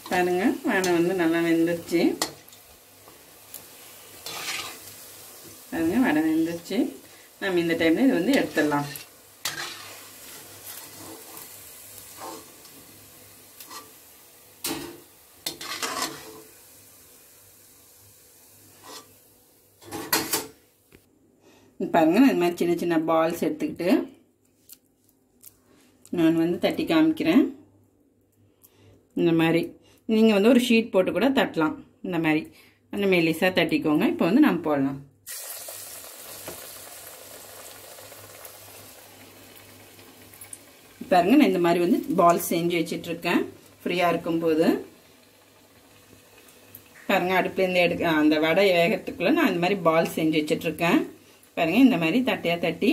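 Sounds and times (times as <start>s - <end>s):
food sizzling in hot oil: 0.0s - 20.6s, 35.2s - 52.9s
metal skimmer scraping a pan: 4.2s - 4.8s, 8.2s - 11.5s, 12.1s - 12.5s, 14.6s - 16.5s, 18.8s - 19.2s.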